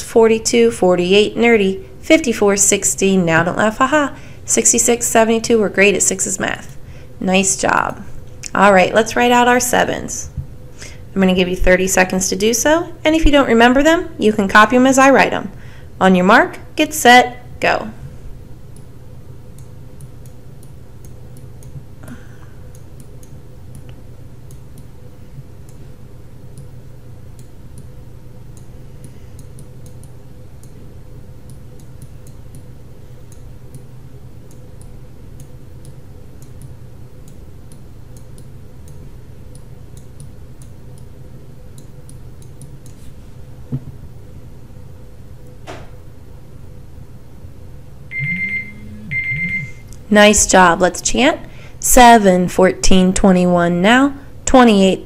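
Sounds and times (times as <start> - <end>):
low electrical hum: 0.0 - 55.0
timer ticking faintly: 48.1 - 50.0.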